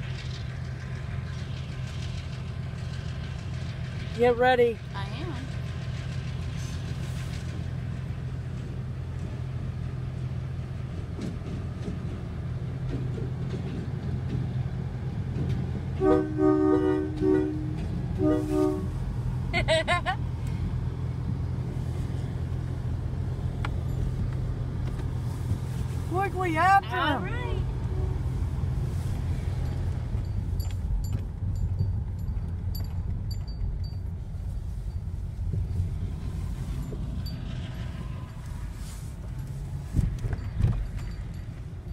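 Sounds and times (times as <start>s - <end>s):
locomotive engine rumble: 0.0s - 41.9s
road noise: 0.0s - 41.9s
train air horn blasts: 16.0s - 19.0s, 27.8s - 28.4s.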